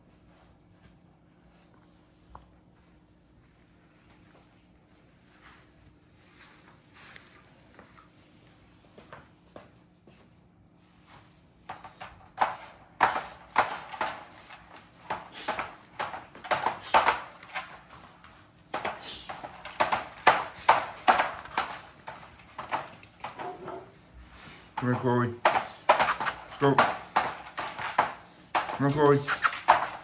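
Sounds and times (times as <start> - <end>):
puppies scuffling on tiled floor: 0.0 - 30.0.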